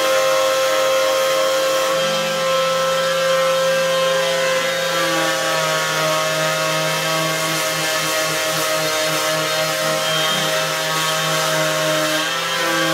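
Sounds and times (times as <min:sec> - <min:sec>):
orbital sander sanding wood: 0:00.0 - 0:12.9.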